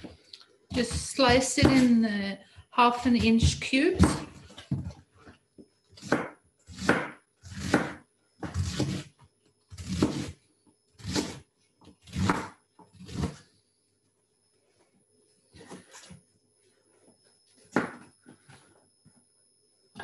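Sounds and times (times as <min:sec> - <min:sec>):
knife cutting cabbage: 0:05.9 - 0:09.1, 0:09.7 - 0:10.4, 0:11.0 - 0:11.4, 0:12.0 - 0:13.4.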